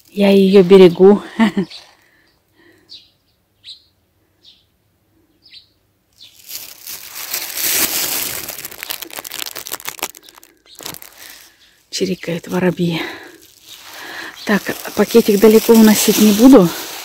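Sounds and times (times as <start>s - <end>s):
sparrows chirping: 0.2s - 6.4s, 10.2s - 16.8s
plastic bag crinkling: 6.2s - 17.0s.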